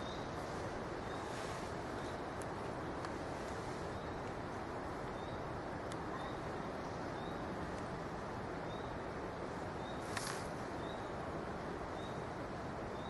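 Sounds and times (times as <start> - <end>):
brief rustle: 10.0 - 10.6.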